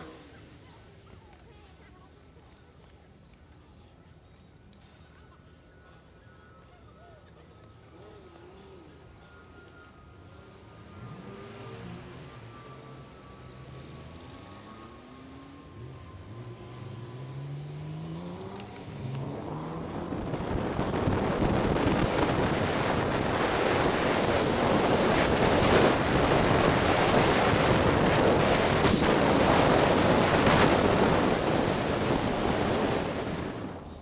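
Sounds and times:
traffic noise: 0.0 - 34.0
wind rushing over microphone: 19.0 - 34.0.

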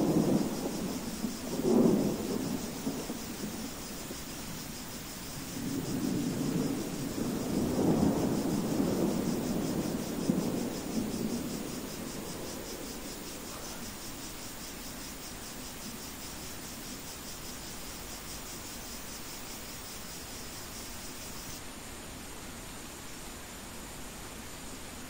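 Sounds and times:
thunder rolling: 0.0 - 14.4
crickets chirping: 0.0 - 25.0
steady rain hiss: 0.0 - 25.0.

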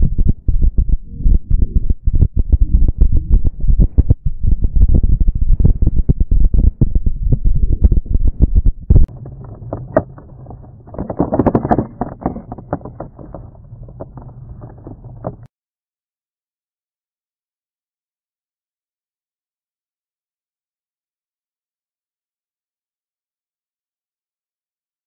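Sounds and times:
steady hum: 0.0 - 15.5
wind buffeting microphone: 0.0 - 15.5.

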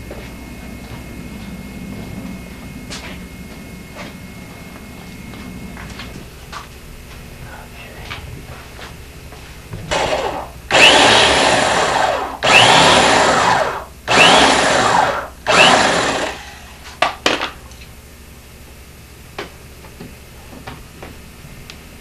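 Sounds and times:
electric drill driving screws: 9.9 - 16.9.

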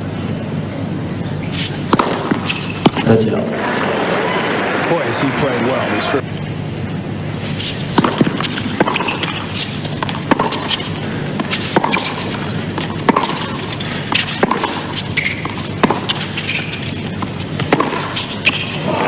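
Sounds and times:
background hum: 0.0 - 19.0
tennis ball struck by racquets: 1.6 - 3.2, 7.8 - 19.0
ball bouncing: 1.9 - 3.5, 8.0 - 13.6, 14.2 - 18.8.

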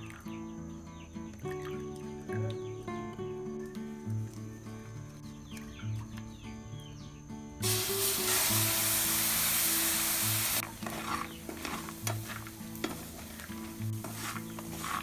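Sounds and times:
liquid sizzling in hot pan: 7.6 - 15.0
nuts scraping against metal mesh: 10.6 - 15.0.

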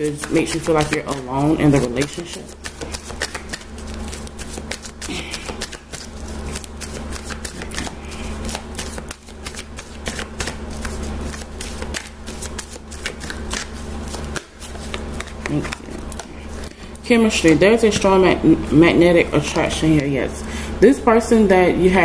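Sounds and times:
cards being shuffled: 0.0 - 18.2.

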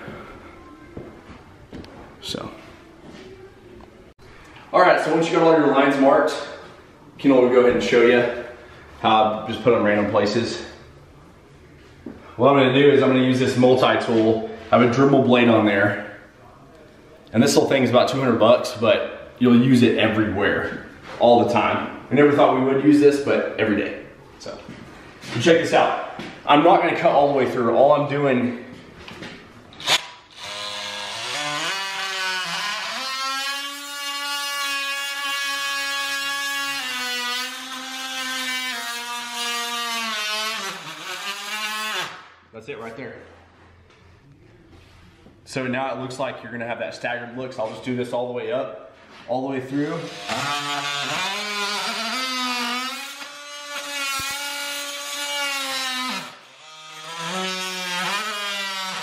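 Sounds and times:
oscillating multi-tool buzzing: 29.8 - 42.2, 50.1 - 59.0.

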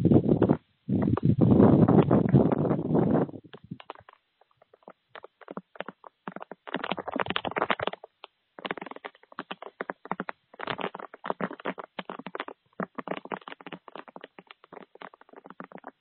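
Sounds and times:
crunching clicks: 3.5 - 16.0.

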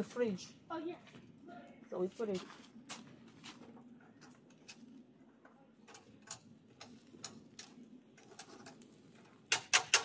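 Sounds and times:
metal tongs clicking on grill grate: 5.9 - 8.8, 9.5 - 10.0.

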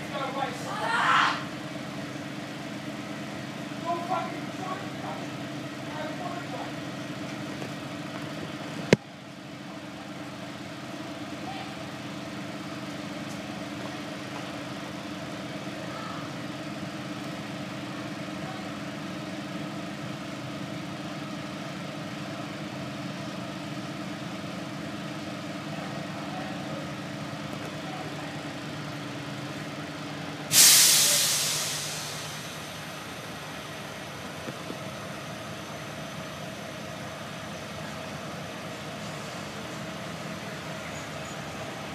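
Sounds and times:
bus diesel engine idling: 0.0 - 41.9
compressed air hiss: 30.5 - 32.6.

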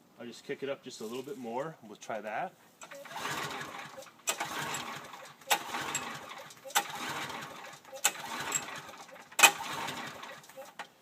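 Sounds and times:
engine whirring over: 2.8 - 10.8
engine pull-starter snapping: 2.8 - 10.9.

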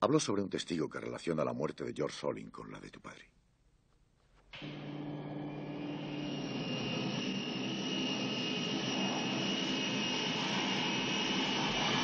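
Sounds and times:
jet turbine engines whining: 4.6 - 12.0.

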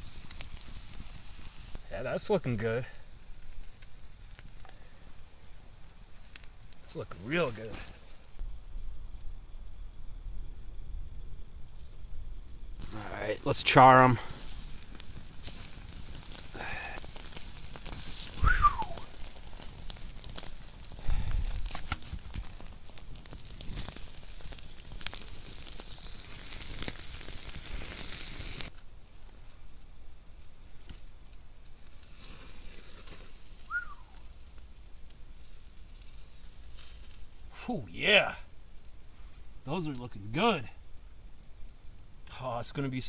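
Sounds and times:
steaks sizzling and crackling: 0.0 - 8.6, 11.6 - 28.7, 30.4 - 38.9.

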